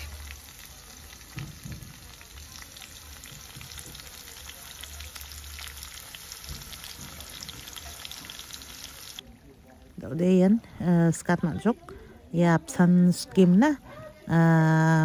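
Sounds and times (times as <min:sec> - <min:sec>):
onions sizzling in hot oil: 0:00.0 - 0:11.4.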